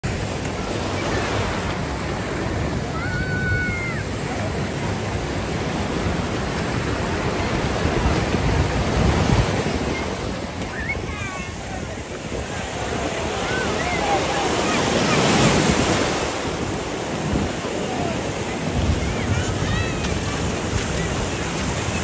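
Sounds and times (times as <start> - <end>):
sea surf breaking on beach: 0.0 - 22.0.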